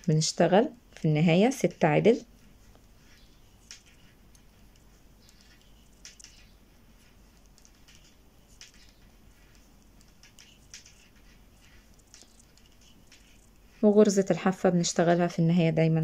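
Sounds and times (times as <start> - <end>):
knitting needles clicking: 2.7 - 13.8.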